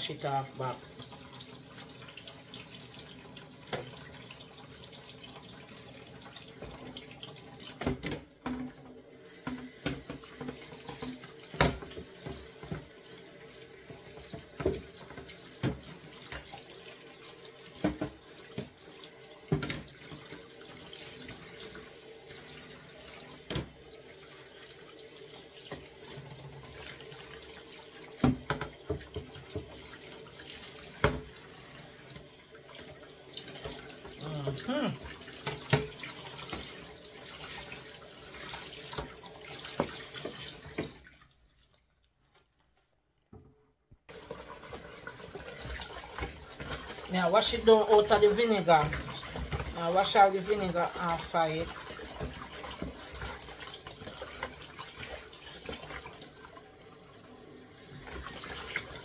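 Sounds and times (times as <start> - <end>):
tap running into sink: 3.6 - 4.2, 6.1 - 16.8, 17.7 - 21.8, 23.4 - 23.8, 28.1 - 31.4, 33.4 - 36.9, 38.5 - 41.0.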